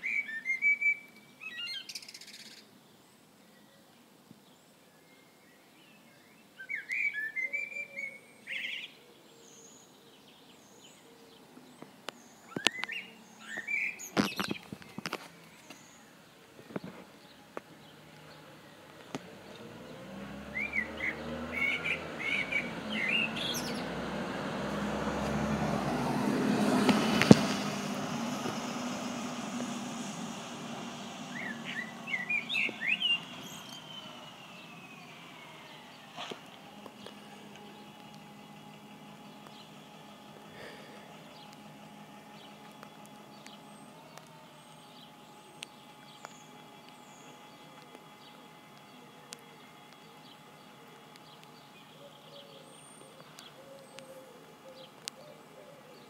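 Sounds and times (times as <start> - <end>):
small birds chirping: 0.0 - 56.0
vehicle passing on wet road: 17.8 - 51.6.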